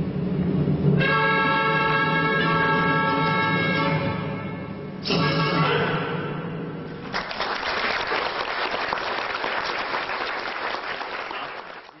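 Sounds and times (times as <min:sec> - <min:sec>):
audience applause: 0:07.0 - 0:12.0.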